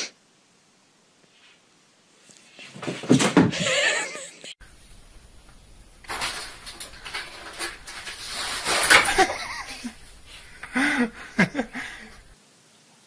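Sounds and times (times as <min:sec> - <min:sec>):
person laughing: 0:03.5 - 0:04.5, 0:08.9 - 0:12.3
rustling: 0:04.6 - 0:12.4.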